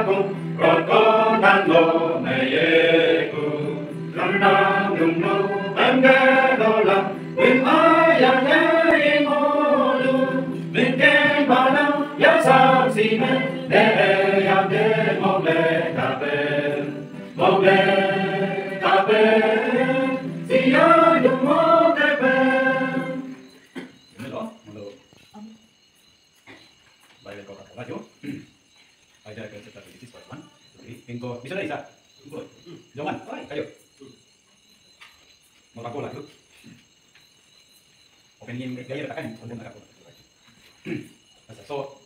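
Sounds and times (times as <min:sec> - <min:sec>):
group singing a chant: 0:00.0 - 0:23.6.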